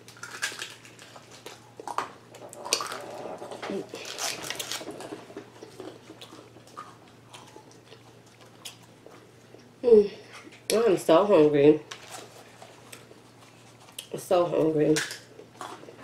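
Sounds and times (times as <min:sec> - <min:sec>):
chewing noodles: 0:00.1 - 0:09.8.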